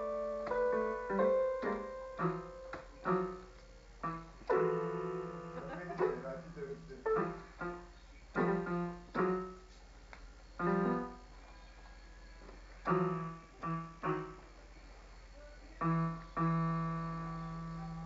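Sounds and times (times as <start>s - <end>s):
electronic keyboard note clusters: 0.0s - 9.7s, 10.6s - 11.3s, 12.8s - 14.5s, 15.8s - 18.0s.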